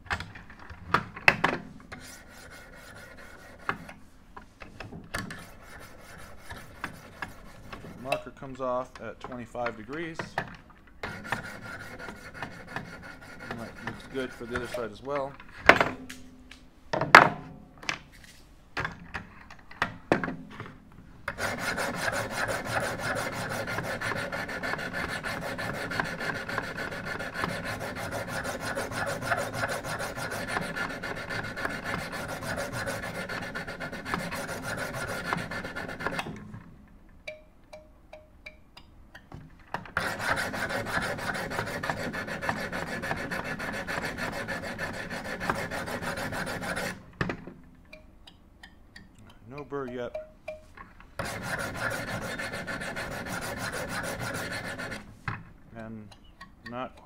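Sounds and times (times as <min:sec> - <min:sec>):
sharpening stones rasping on knife: 0:11.0 - 0:15.0, 0:21.4 - 0:36.2, 0:51.2 - 0:55.0.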